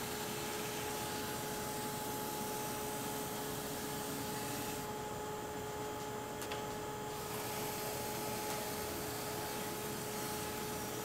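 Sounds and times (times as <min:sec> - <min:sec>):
steady background hum: 0:00.0 - 0:11.0.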